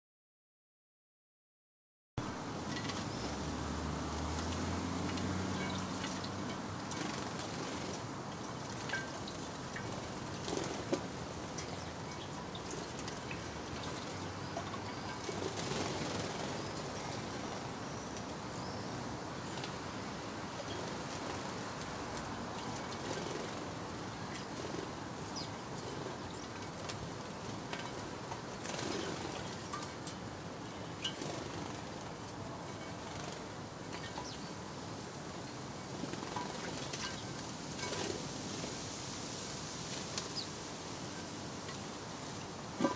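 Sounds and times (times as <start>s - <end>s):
background hiss: 2.2s - 42.9s
sparrows chirping: 11.5s - 21.6s, 22.5s - 27.1s, 28.6s - 32.0s, 32.7s - 34.7s
wing flutters: 15.1s - 17.7s.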